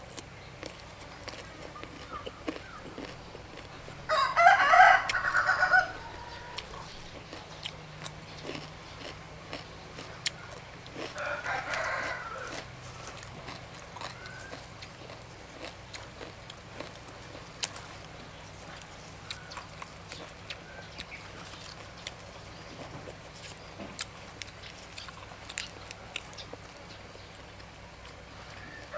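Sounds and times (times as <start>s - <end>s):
rooster crowing: 4.0s - 7.0s, 10.5s - 13.3s, 28.4s - 28.9s.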